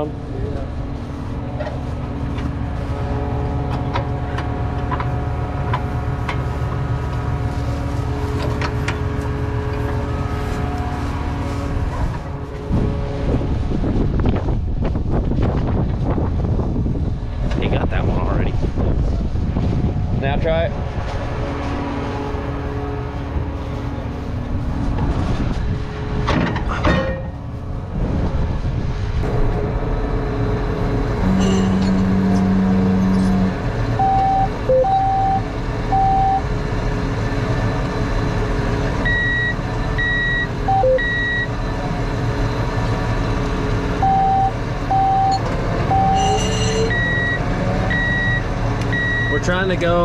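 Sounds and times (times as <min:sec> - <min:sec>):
tractor engine running: 0:00.0 - 0:20.2, 0:20.8 - 0:50.0
alarm short beeps: 0:34.0 - 0:36.4, 0:39.1 - 0:41.5, 0:44.0 - 0:49.4
monitor alarm long low tone: 0:34.0 - 0:36.5, 0:39.0 - 0:41.6, 0:44.0 - 0:49.5.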